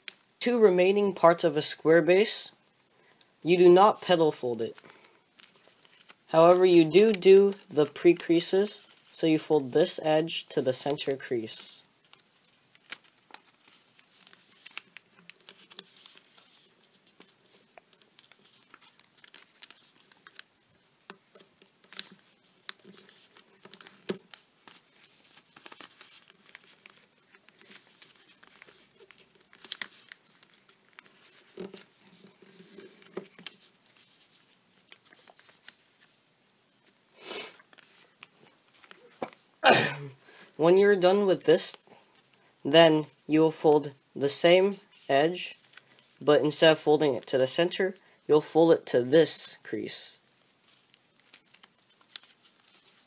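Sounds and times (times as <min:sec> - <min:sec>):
paper rustling and crackling: 0:04.7 - 0:09.2, 0:10.7 - 0:39.5, 0:44.7 - 0:46.2, 0:50.3 - 0:53.0.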